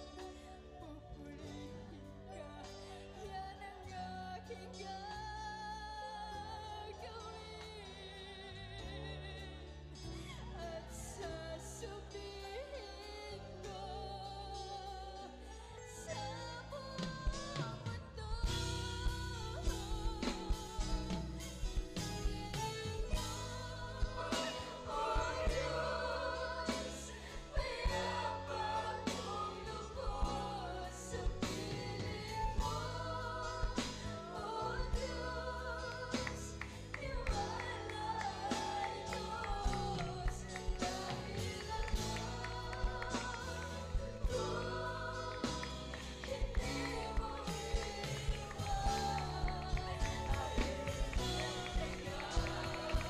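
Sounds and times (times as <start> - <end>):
bass line: 0.0 - 53.0
choir singing worship song: 0.0 - 53.0
band accompaniment: 15.5 - 53.0.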